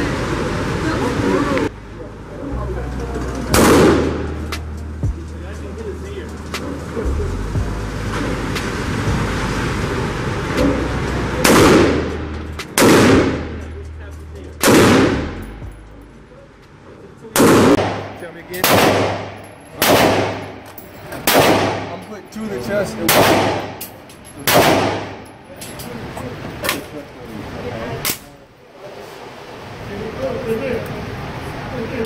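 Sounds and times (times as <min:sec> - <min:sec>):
gunshots with ringing echo: 0:03.5 - 0:04.4, 0:11.4 - 0:13.6, 0:14.6 - 0:15.5, 0:17.4 - 0:22.0, 0:23.1 - 0:25.3.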